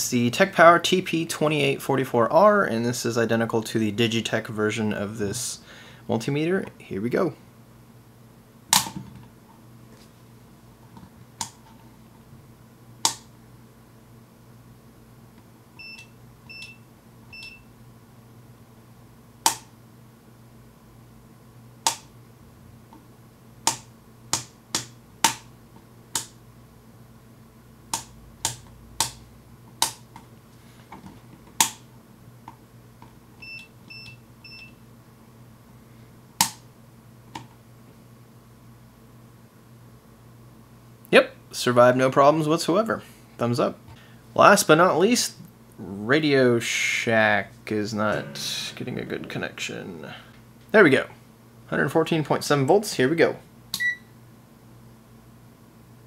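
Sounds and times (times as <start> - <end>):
short beeps: 48.1 - 48.9.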